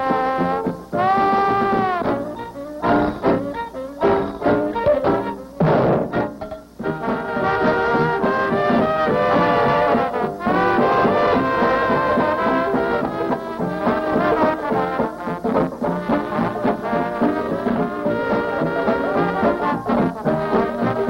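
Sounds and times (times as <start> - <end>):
instrumental background music: 0.0 - 21.0.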